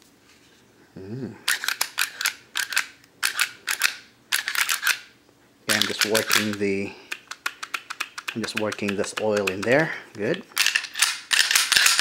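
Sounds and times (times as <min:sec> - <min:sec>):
pistol slide clicking: 0:01.5 - 0:05.0, 0:10.6 - 0:12.0.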